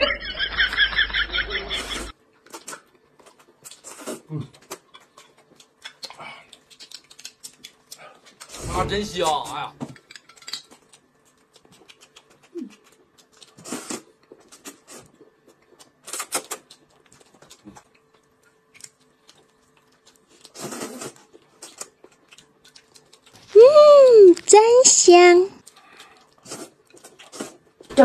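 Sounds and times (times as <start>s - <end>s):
chewing clicks: 4.5s - 8.5s, 10.1s - 13.6s, 15.6s - 20.5s, 21.6s - 23.5s, 25.6s - 27.9s
noodles being slurped: 13.4s - 15.1s, 20.3s - 22.0s, 25.7s - 27.8s.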